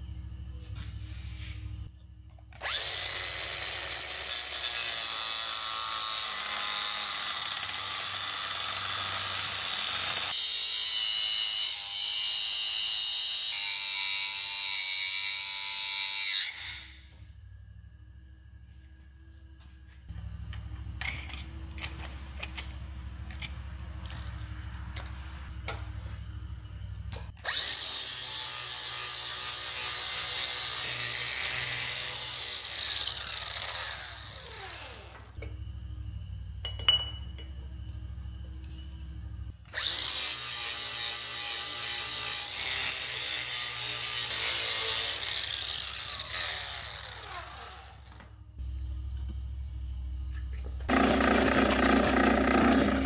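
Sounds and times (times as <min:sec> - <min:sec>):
angle grinder cutting metal pipe: 0:02.6 - 0:17.0, 0:27.2 - 0:35.4, 0:39.7 - 0:48.3, 0:50.9 - 0:53.0.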